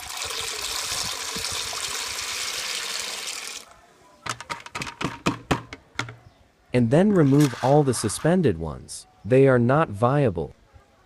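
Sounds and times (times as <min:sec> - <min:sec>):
sharp clicks and knocks: 0:04.2 - 0:06.2.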